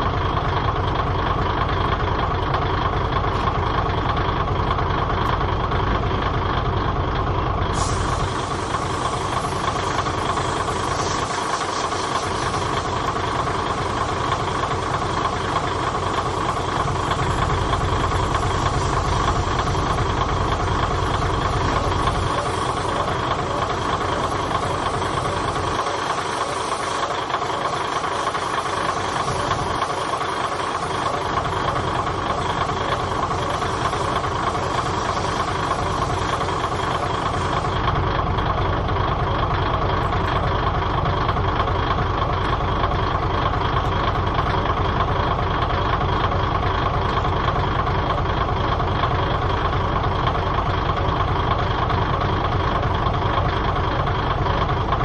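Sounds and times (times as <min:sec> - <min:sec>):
diesel engine idling: 0:00.0 - 0:55.0
steady hum: 0:07.7 - 0:37.9.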